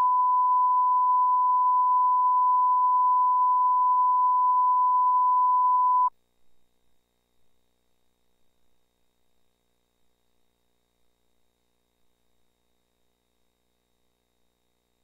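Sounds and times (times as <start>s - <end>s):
steady sine reference tone: 0.0s - 6.1s.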